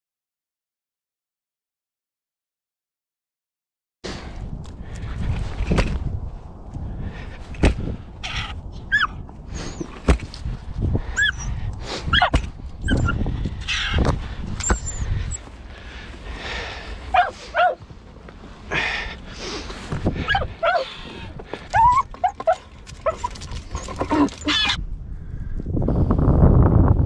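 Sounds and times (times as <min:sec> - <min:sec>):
dry grass rustling: 0:04.2 - 0:25.8
dog whining: 0:08.9 - 0:09.9, 0:11.2 - 0:14.0, 0:14.6 - 0:15.4, 0:17.1 - 0:17.8, 0:20.2 - 0:20.9, 0:21.7 - 0:24.8.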